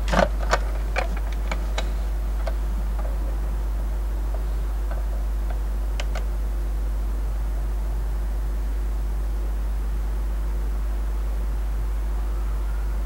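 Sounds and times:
steady low hum: 0.0 - 13.0
dosimeter clicking: 0.1 - 3.2, 4.3 - 6.3.

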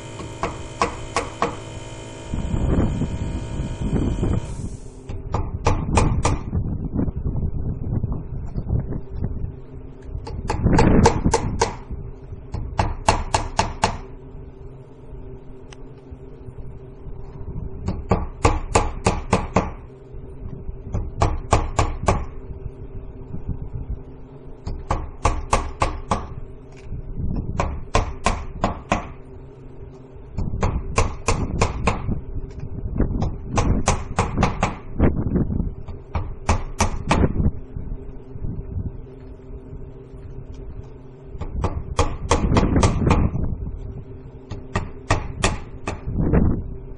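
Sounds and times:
hammer nailing siding: 0.0 - 6.5, 10.2 - 11.9, 12.5 - 14.1, 17.9 - 19.8, 20.9 - 22.3, 24.7 - 26.4, 27.6 - 29.2, 30.6 - 32.1, 33.2 - 34.9, 35.9 - 37.3, 41.4 - 43.3, 44.5 - 46.1.

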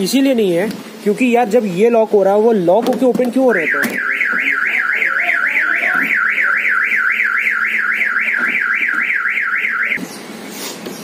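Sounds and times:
car alarm siren warbling: 3.5 - 10.0.

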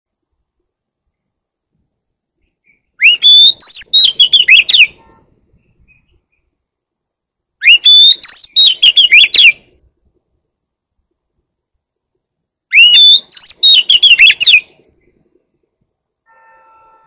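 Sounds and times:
bird singing whistled phrases: 2.6 - 5.0, 7.6 - 9.6, 12.7 - 14.7.

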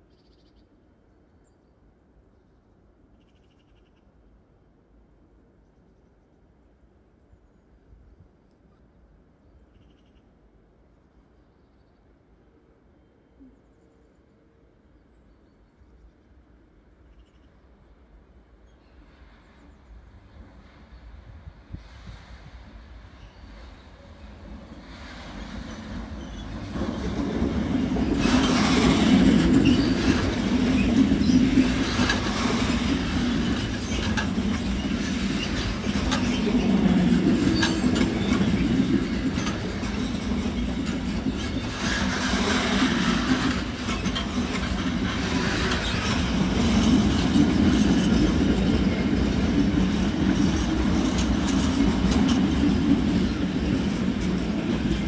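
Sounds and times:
freight train rolling past: 16.7 - 55.0.

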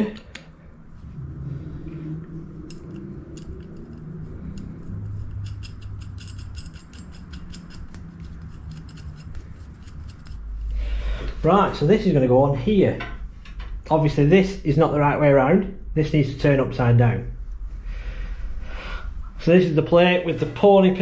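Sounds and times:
low steady hum: 0.0 - 21.0
metal-on-metal clicks: 2.6 - 10.5.

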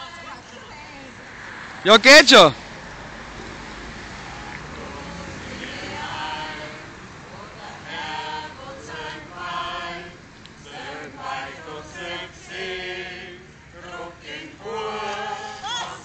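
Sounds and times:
mixed choir singing: 4.2 - 16.0.

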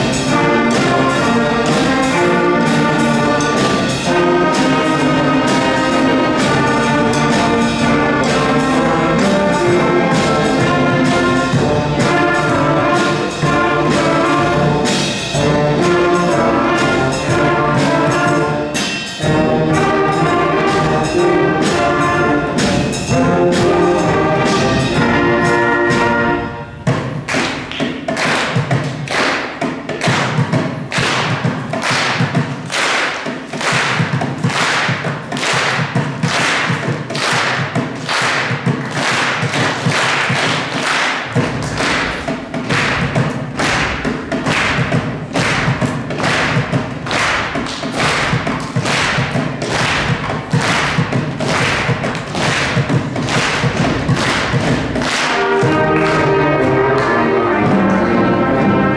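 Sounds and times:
percussive beat of thumps: 26.9 - 56.3.

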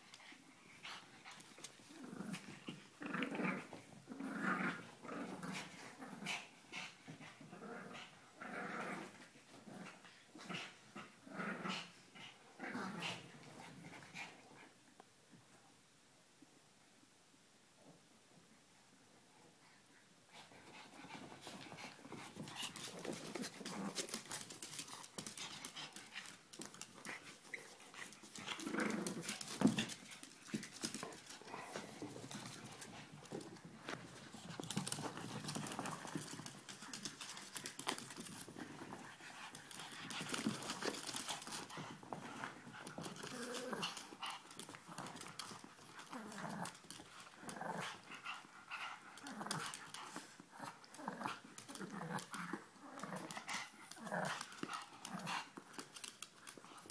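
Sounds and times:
dogs play-growling: 0.1 - 14.7, 20.3 - 56.9
dogs scuffling: 20.8 - 48.4.

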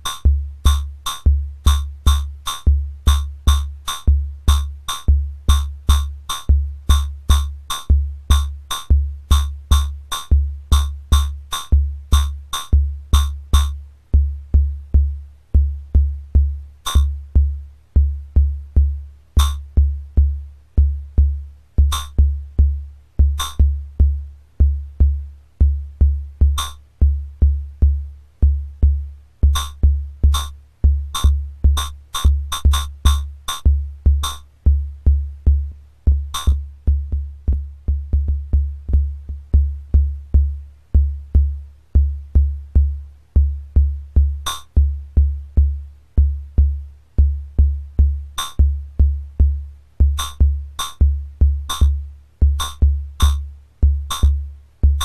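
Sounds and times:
sharp electronic snare hits: 16.9 - 17.1, 23.4 - 23.6, 26.6 - 26.8, 29.5 - 30.5, 34.2 - 34.4, 36.3 - 36.6, 50.2 - 51.0, 52.6 - 53.4, 54.1 - 54.3.

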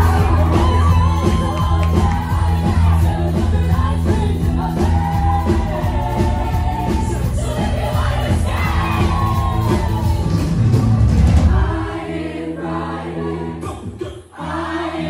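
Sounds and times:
person singing: 0.0 - 10.5
live band playing: 0.0 - 11.8
heavy bass: 0.0 - 12.0.

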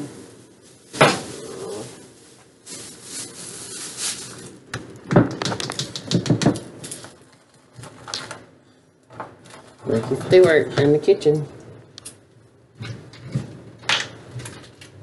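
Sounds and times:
rustling: 0.0 - 4.7.

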